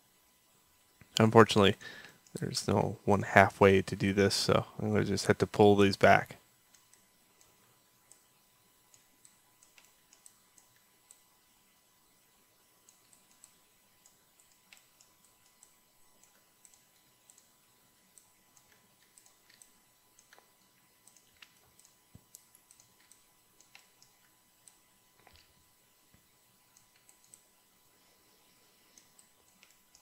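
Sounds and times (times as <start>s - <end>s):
mouse and keyboard clicks: 18.2s - 25.5s, 28.9s - 30.0s.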